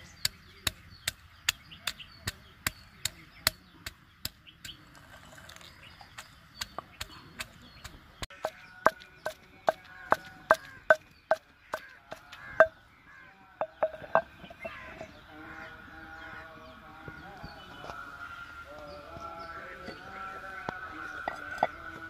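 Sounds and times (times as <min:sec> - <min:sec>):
pestle pounding in stone mortar: 0:06.0 - 0:12.8, 0:13.6 - 0:15.1.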